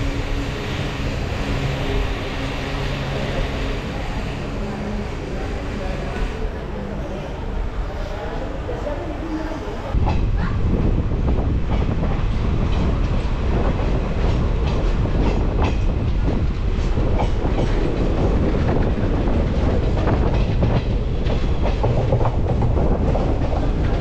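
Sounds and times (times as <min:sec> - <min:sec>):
train coaches rumbling: 0:00.0 - 0:24.0
wheels clacking over rail joints: 0:11.6 - 0:24.0.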